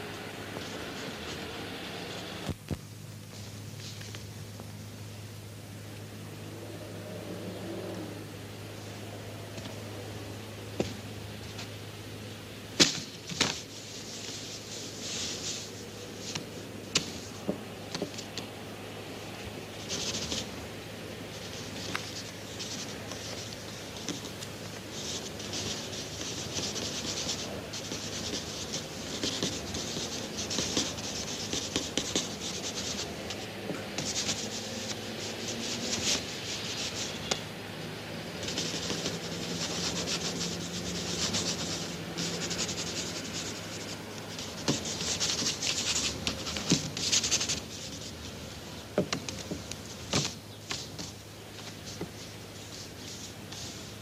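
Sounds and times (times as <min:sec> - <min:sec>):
brush scraping canvas: 0:00.0 - 0:02.3, 0:12.9 - 0:18.4, 0:19.2 - 0:20.6, 0:21.2 - 0:37.5, 0:38.2 - 0:54.0
low steady hum: 0:00.0 - 0:54.0.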